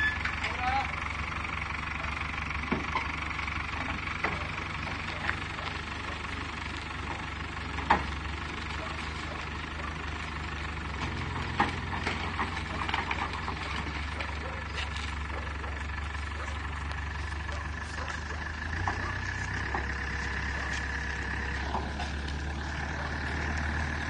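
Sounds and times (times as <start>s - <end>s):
diesel engine running at low revs: 0.0s - 24.0s
metallic clanks: 10.9s - 14.7s.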